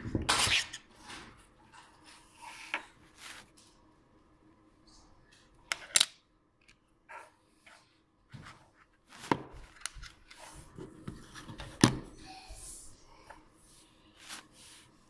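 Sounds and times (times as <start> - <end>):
soft rubbing of plastic pieces: 7.5 - 15.0.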